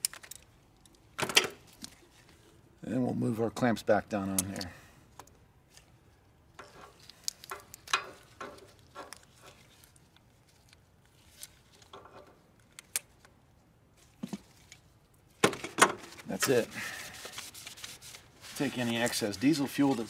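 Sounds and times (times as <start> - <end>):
hand tools clicking and scraping: 6.6 - 9.8.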